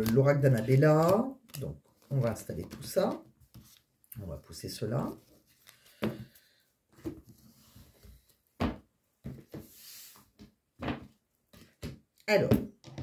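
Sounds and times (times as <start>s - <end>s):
cards sliding on cloth: 9.5s - 10.3s.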